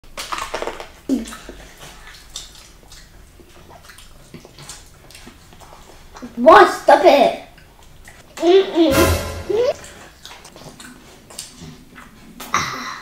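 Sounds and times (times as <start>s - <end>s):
chewing and lip-smacking: 0.2s - 6.3s, 7.6s - 8.2s, 10.6s - 12.5s.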